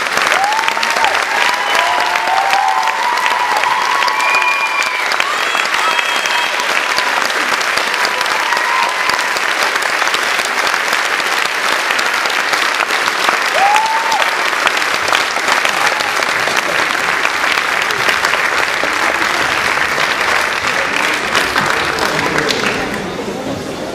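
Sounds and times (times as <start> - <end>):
audience applauding: 0.0 - 23.7.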